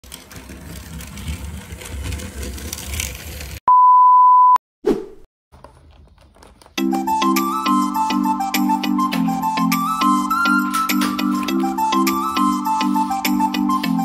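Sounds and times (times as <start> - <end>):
toy train rattling on track: 0.0 - 3.6
high test-tone beep: 3.7 - 4.6.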